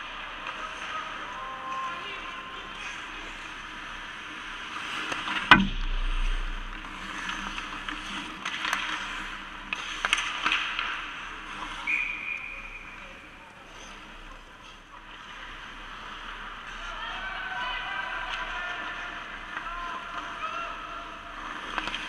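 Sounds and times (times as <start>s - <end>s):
skates scraping ice: 0.0s - 22.0s
sticks and puck clacking: 4.9s - 12.8s, 21.4s - 22.0s
referee's whistle: 11.8s - 13.0s.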